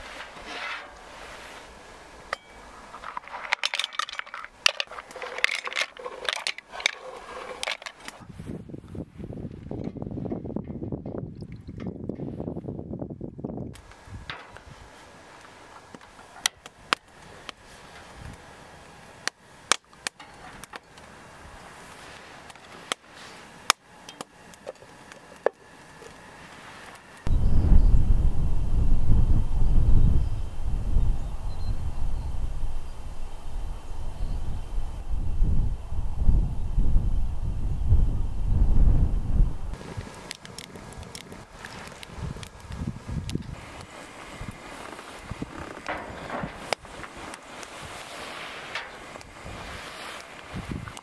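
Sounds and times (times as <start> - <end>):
faint steady hiss: 0.0 - 9.8, 11.9 - 51.0
small hard objects clinking: 2.4 - 8.2.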